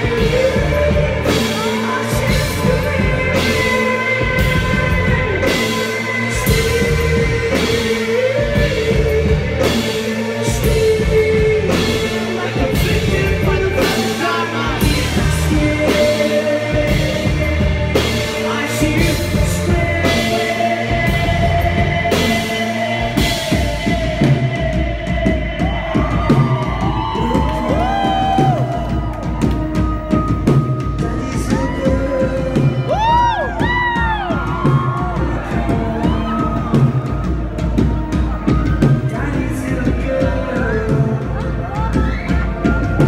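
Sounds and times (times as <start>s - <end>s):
heavy beat: 0.0s - 43.0s
live rock band playing: 0.0s - 43.0s
person singing: 0.0s - 43.0s.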